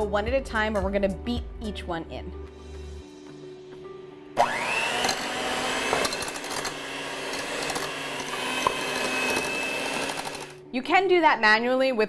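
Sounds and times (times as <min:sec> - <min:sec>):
electric hand mixer whine: 0:04.4 - 0:10.6.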